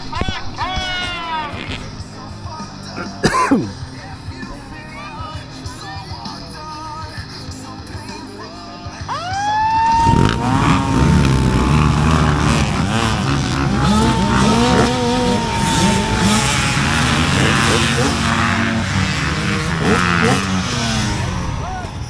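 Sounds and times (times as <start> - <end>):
dirt bike engines revving: 9.2 - 22.0
high whine: 9.4 - 22.0.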